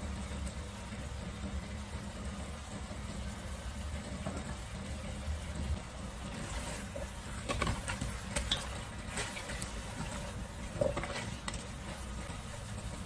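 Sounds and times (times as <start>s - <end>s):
food simmering in a pot: 0.0s - 13.0s
low steady hum: 0.0s - 13.0s
spatula scraping a metal pot: 6.3s - 13.0s.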